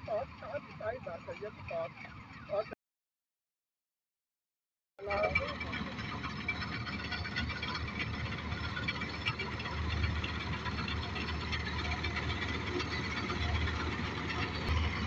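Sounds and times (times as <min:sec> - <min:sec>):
combine harvester engine drone: 0:00.0 - 0:02.8, 0:05.0 - 0:15.0
machinery clatter: 0:05.0 - 0:15.0.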